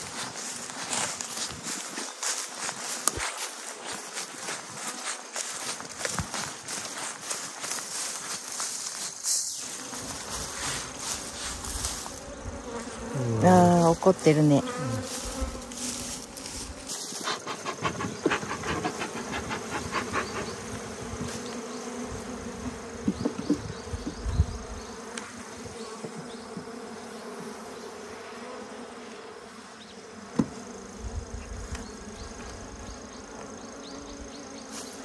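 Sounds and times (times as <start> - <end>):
bees buzzing: 0.0 - 35.0
clicks and knocks from hive: 14.6 - 24.4, 25.0 - 27.6, 30.3 - 30.7.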